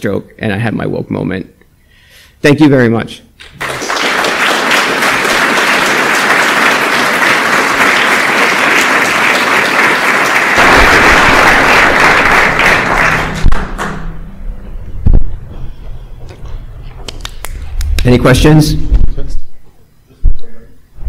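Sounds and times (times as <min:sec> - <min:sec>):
audience applauding: 0:03.4 - 0:14.2.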